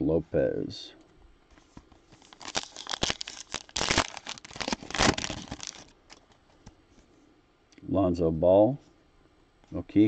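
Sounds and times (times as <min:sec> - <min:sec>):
wrapper tearing and crinkling: 0:02.1 - 0:06.2.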